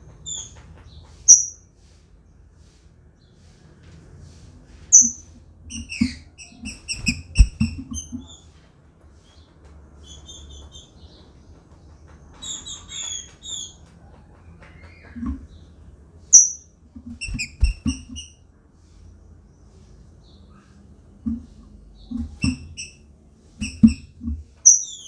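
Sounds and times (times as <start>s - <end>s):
soft thumps: 6.0s - 8.3s.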